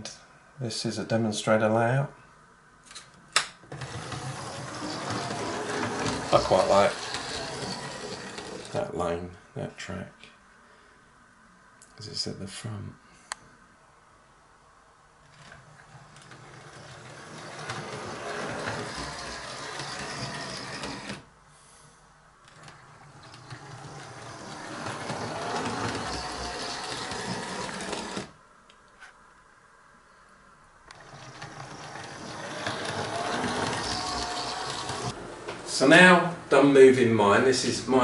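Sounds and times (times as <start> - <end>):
small electric motor whirring: 3.7 - 8.8, 16.3 - 21.2, 22.5 - 28.4, 30.9 - 35.2
wheels clattering on rails: 3.8 - 8.9, 16.0 - 21.2, 22.5 - 28.3, 31.0 - 35.2.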